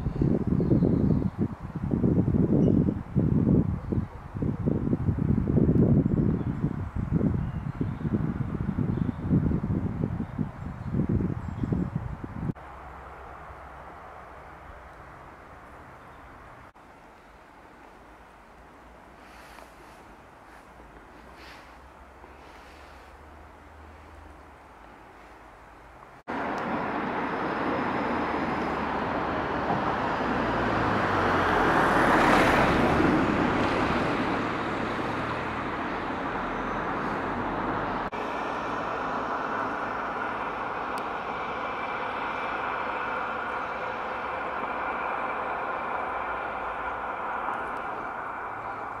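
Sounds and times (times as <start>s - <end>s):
vehicle passing: 26.2s - 49.0s.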